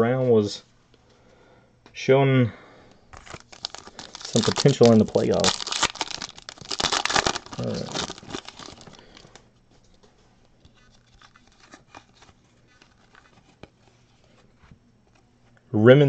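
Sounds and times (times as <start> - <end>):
foil pack crinkling: 3.1 - 9.4, 10.8 - 13.7.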